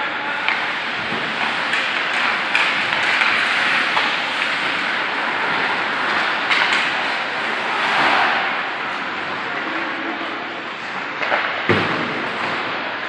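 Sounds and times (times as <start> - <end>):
arena noise: 0.0 - 13.0
stick hitting puck: 0.4 - 4.9, 6.0 - 7.2.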